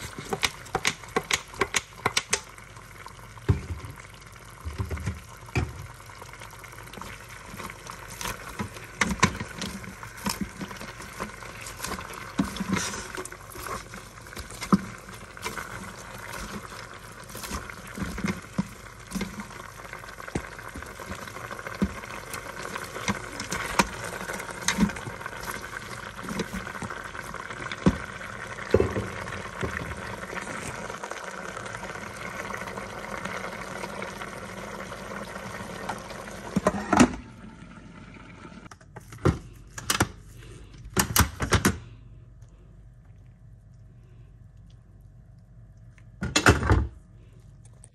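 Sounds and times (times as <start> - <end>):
meat and vegetables sizzling: 0.0 - 36.9.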